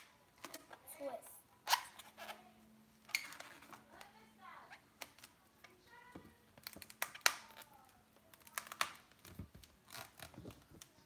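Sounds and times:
balloon squeaking and creaking: 0:01.7 - 0:03.8, 0:06.6 - 0:11.0.

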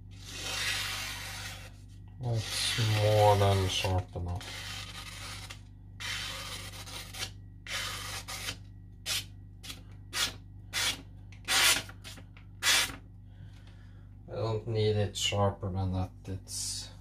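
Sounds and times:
knife scraping on whetstone: 0:00.2 - 0:01.8, 0:02.4 - 0:08.5.

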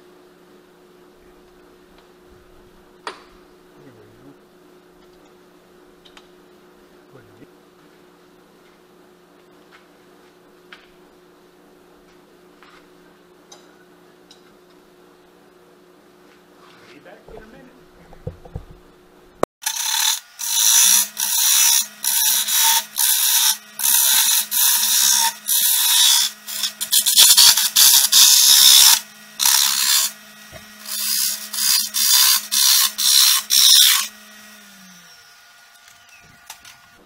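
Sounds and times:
tool scraping wood on lathe: 0:19.6 - 0:34.1.

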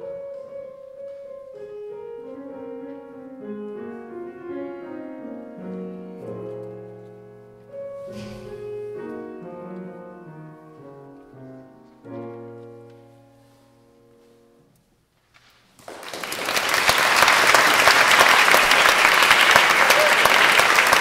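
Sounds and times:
grand piano chords: 0:00.0 - 0:15.2
audience applause: 0:15.8 - 0:21.0.

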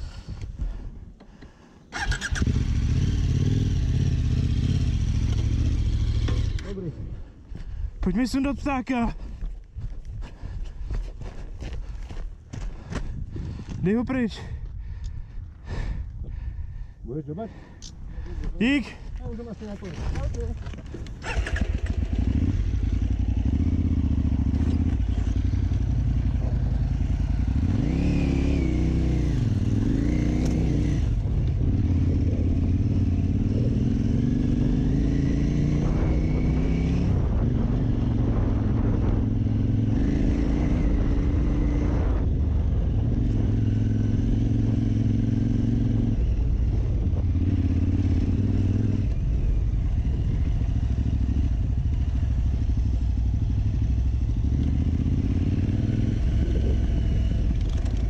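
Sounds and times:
motorcycle engine revving: 0:01.9 - 0:07.0, 0:19.8 - 0:58.0.

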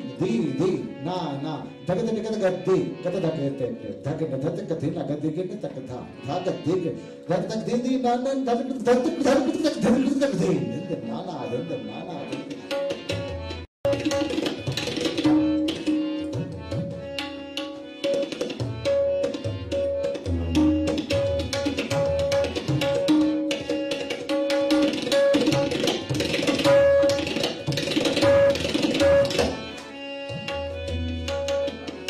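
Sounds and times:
harmonium melody: 0:00.0 - 0:32.0
tabla drumming: 0:07.4 - 0:32.0.

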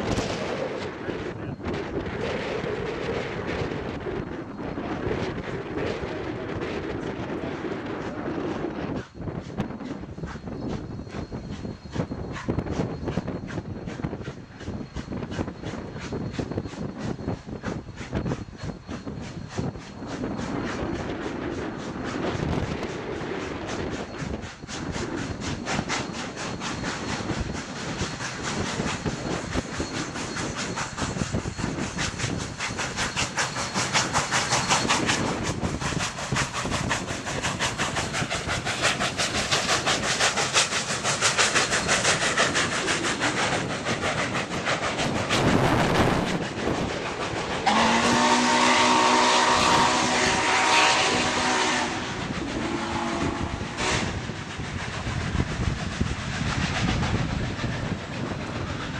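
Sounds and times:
steam locomotive exhaust chuffs: 0:00.0 - 0:58.9
train clatter: 0:00.0 - 0:58.9
steam whistle blast: 0:47.6 - 0:54.1.

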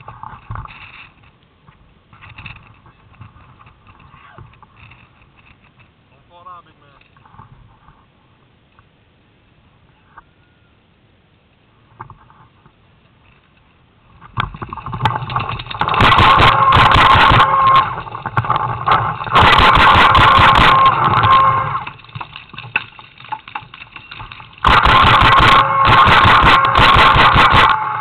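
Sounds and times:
steady whine: 0:11.6 - 0:28.0
paintball marker firing: 0:24.6 - 0:28.0.

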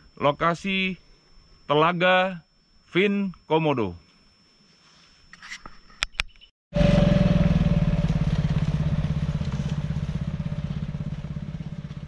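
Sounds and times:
buggy engine running: 0:06.8 - 0:12.0.

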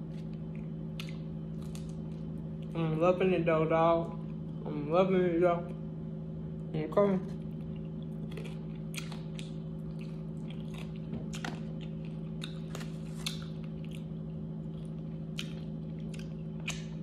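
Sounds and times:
person chewing crunchy food: 0:00.0 - 0:02.8, 0:07.4 - 0:17.0
low hum: 0:00.0 - 0:17.0.

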